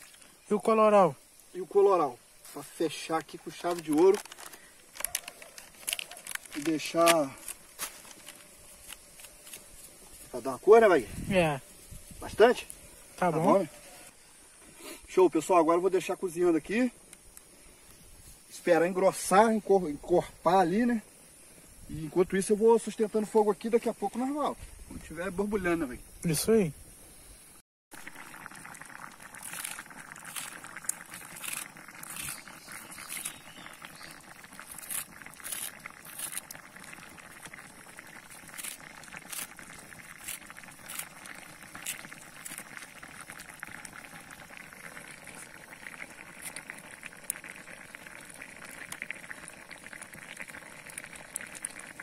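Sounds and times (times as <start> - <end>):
fire pops and crackles: 0.0 - 12.8, 28.0 - 52.0
stew bubbling in a pot: 0.0 - 26.9, 27.9 - 52.0.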